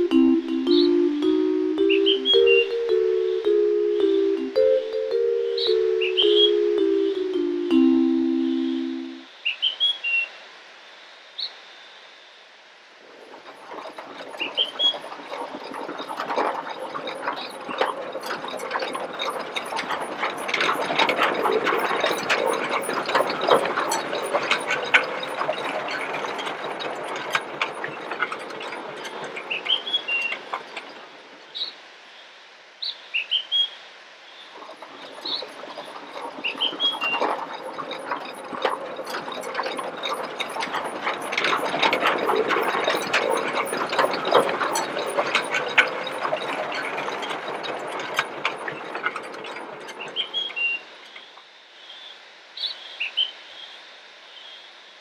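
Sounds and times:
steam tractor chugging and clanking: 0.0s - 9.2s, 13.2s - 31.3s, 34.6s - 51.1s.

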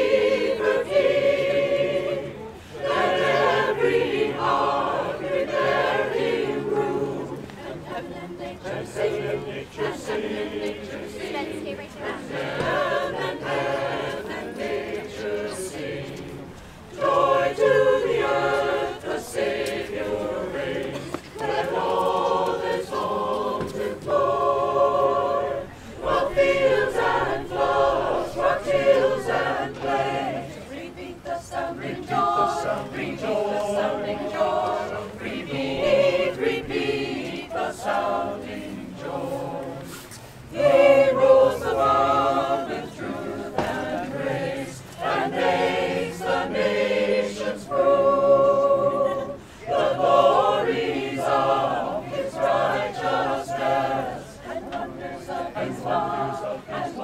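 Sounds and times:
choir singing in harmony: 0.0s - 57.0s.

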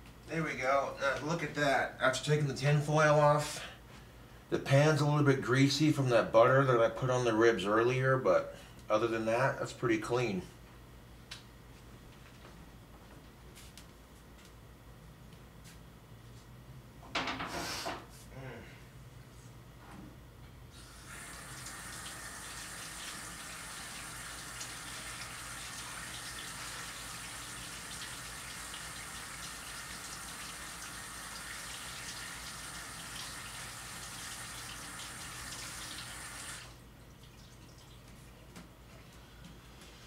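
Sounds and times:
tap water running: 20.8s - 38.2s.

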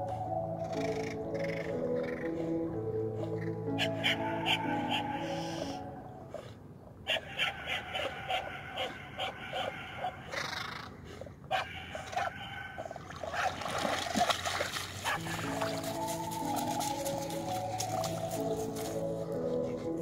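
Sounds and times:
dog breathing while swimming: 4.6s - 6.7s, 10.3s - 16.4s
dog paddling in water: 10.3s - 20.0s
splashing through shallow water: 12.8s - 19.0s.

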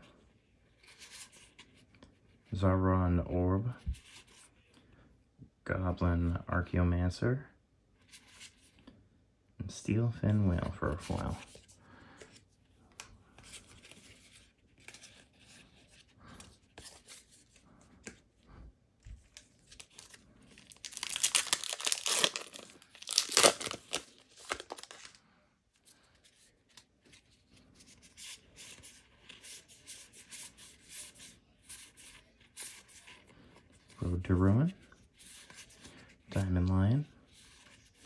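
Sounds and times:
cards rustling and clicking: 10.6s - 18.4s, 19.0s - 25.2s
foil wrapper tearing and crinkling: 19.7s - 25.2s.

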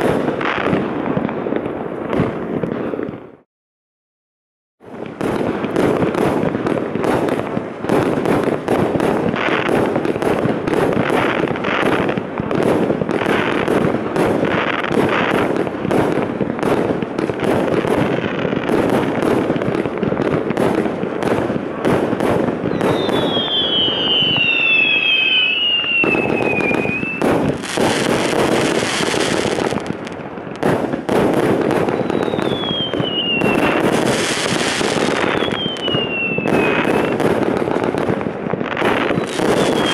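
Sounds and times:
fireworks shots bursting: 0.0s - 3.5s, 4.8s - 39.9s
falling firework whistles: 22.6s - 30.0s, 31.4s - 37.5s, 38.8s - 39.9s.

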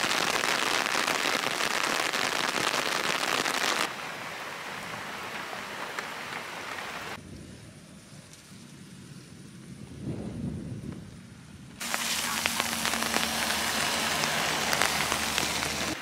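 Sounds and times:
heavy rain pouring: 0.0s - 7.2s, 11.8s - 16.0s.

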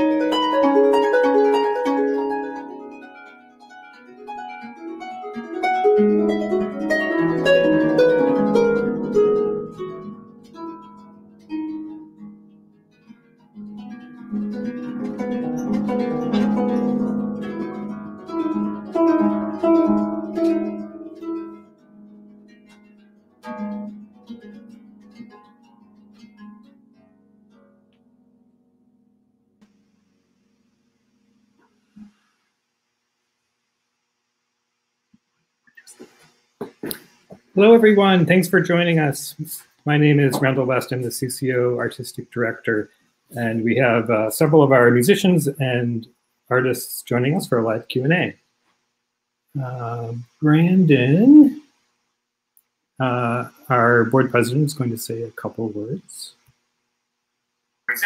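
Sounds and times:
harp plucked notes: 0.0s - 28.6s, 37.6s - 42.8s.

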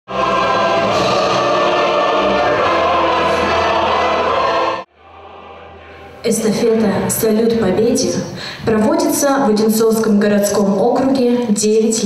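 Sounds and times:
choir singing with accompaniment: 0.1s - 6.7s.

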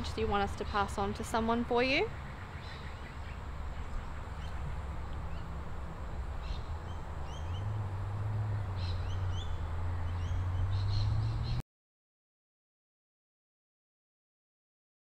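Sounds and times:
small birds chirping: 0.0s - 11.6s.

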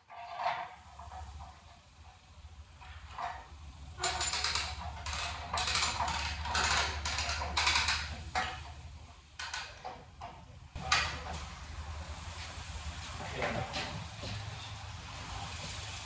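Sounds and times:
steel chain rattling: 2.7s - 9.8s.

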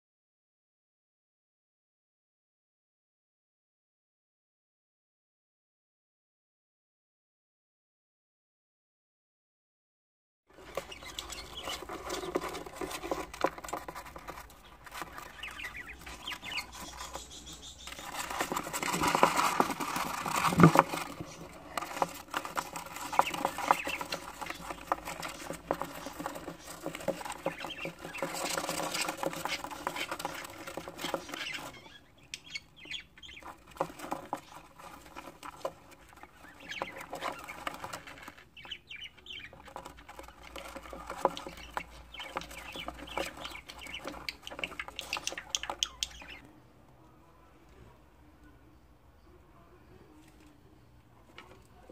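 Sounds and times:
bird chicks chirping: 10.5s - 46.6s
claws scratching on plastic: 10.6s - 46.4s.

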